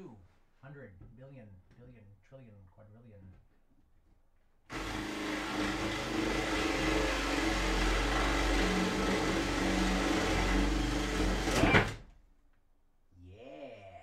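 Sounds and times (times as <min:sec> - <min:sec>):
cordless drill boring into wood: 0:04.7 - 0:12.0.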